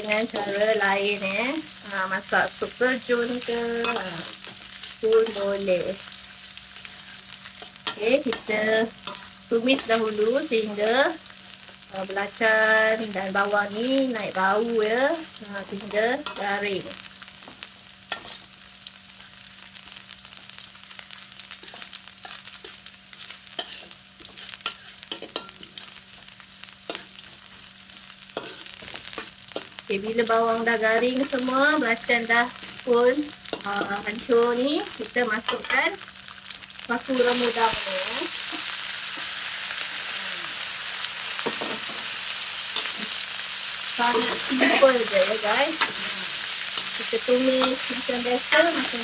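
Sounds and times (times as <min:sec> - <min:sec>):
food sizzling in hot oil: 0:00.0 - 0:49.0
spatula scraping pan: 0:21.6 - 0:26.0.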